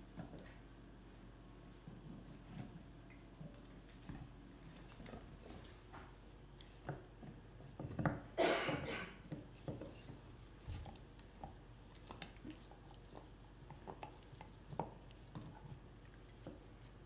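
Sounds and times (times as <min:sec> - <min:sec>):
dog gnawing a bone: 0:09.2 - 0:17.0.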